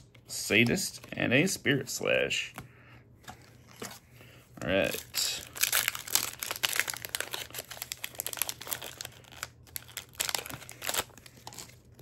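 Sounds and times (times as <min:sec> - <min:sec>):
wrapper crinkling and tearing: 0:04.6 - 0:12.0.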